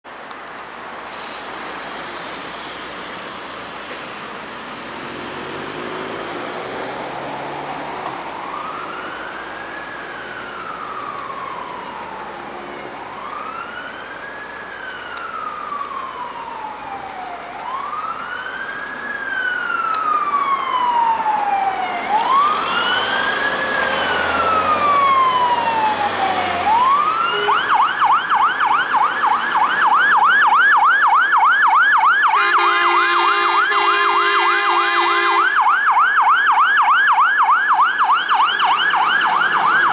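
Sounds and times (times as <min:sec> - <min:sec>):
fire engine siren: 0:01.0 - 0:39.9
truck horns blasting: 0:27.2 - 0:27.8, 0:32.4 - 0:35.6.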